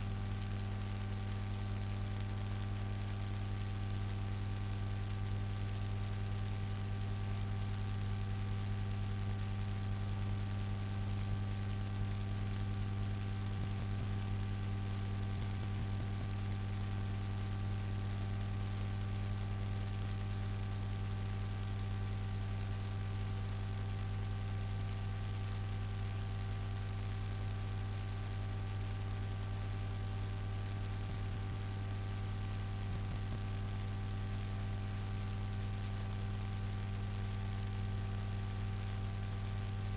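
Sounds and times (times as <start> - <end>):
electrical hum: 7.0 - 19.6, 27.3 - 36.5.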